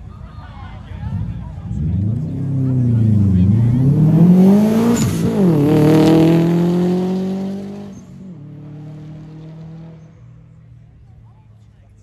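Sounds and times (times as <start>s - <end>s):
car engine accelerating hard: 0.9s - 10.3s.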